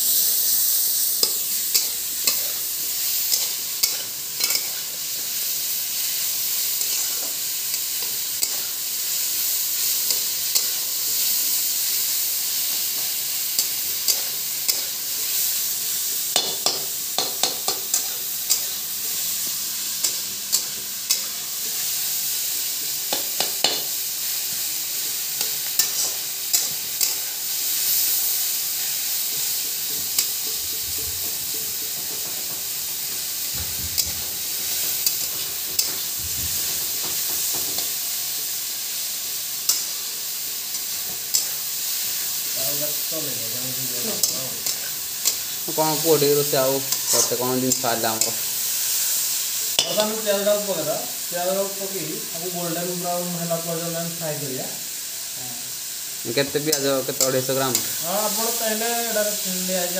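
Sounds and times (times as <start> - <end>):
vegetables sizzling in oil: 0.0 - 59.9
metal spatula clinking and scraping pan: 3.3 - 4.9, 13.6 - 15.0, 49.8 - 50.2.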